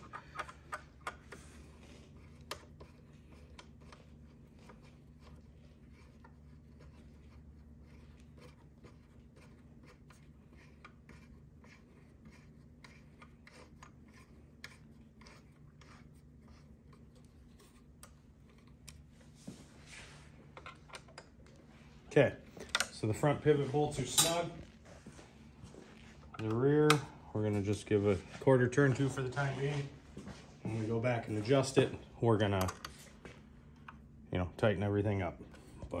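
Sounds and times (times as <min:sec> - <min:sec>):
hand driver clicking and scraping: 0:00.0 - 0:01.7, 0:26.2 - 0:27.7
low steady hum: 0:00.0 - 0:36.0.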